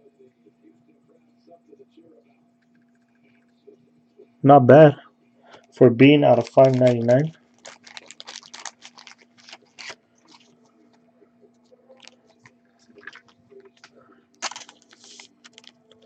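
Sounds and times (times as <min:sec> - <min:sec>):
plastic rustling: 0:06.3 - 0:10.6, 0:12.8 - 0:16.0.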